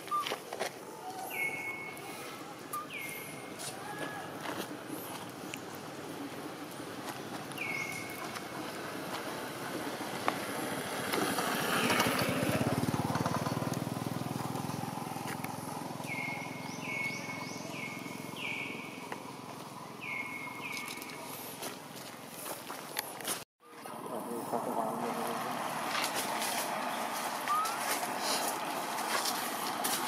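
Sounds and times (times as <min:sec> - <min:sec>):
motorbike engine passing: 0:06.4 - 0:20.5, 0:23.8 - 0:30.0
short falling chirps: 0:27.5 - 0:27.9.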